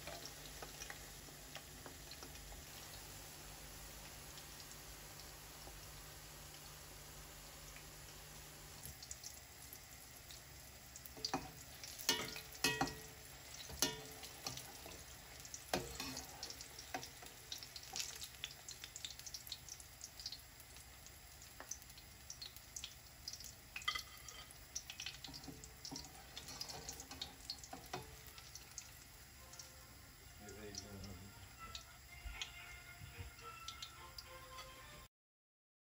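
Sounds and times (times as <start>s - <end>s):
deep-frying in oil sizzling: 0.0s - 35.1s
metal spoon scraping a pan: 15.7s - 17.1s, 23.8s - 24.6s, 25.3s - 28.2s.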